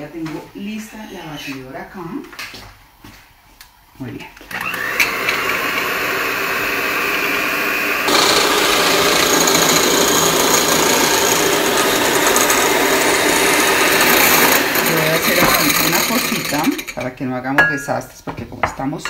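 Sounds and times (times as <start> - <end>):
electric hand mixer whisking: 4.5 - 17.1.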